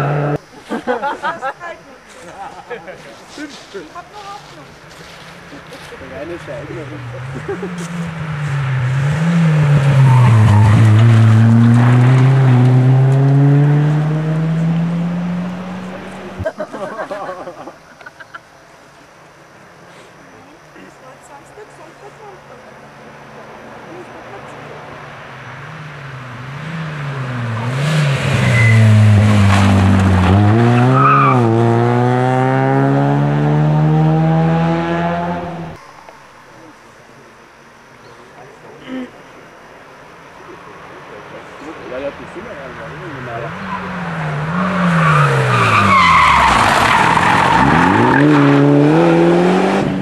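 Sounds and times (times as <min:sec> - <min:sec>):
rally car engine at full throttle: 0:00.0 - 0:00.5, 0:05.0 - 0:16.6, 0:23.1 - 0:35.8, 0:41.0 - 0:50.0
tyre noise: 0:00.0 - 0:18.3, 0:25.4 - 0:35.8
tyre squeals: 0:07.3 - 0:12.6, 0:28.3 - 0:31.6, 0:43.2 - 0:48.8
gravel thrown up: 0:28.2 - 0:30.6.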